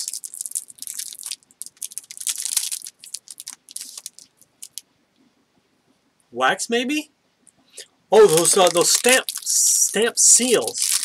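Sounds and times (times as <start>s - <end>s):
packaging crinkling: 0.0s - 4.8s, 8.2s - 11.0s.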